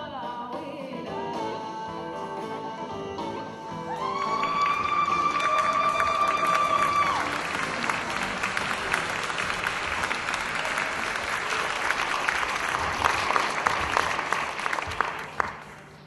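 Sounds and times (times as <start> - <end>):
audience applauding: 4.0 - 16.0.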